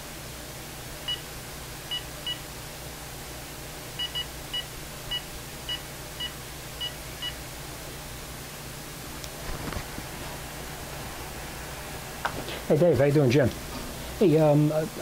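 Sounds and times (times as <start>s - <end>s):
phone keypad beeps: 4.0s - 7.4s.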